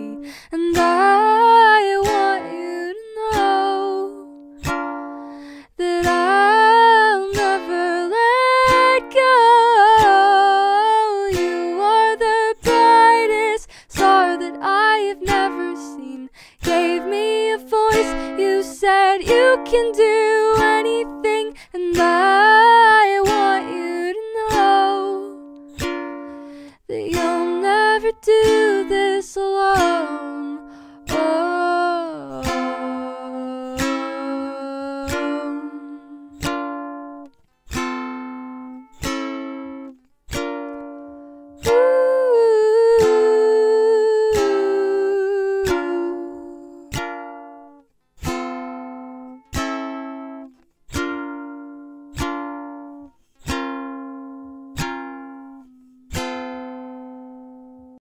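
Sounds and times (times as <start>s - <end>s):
plucked ukulele-like strings: 0.0s - 58.0s.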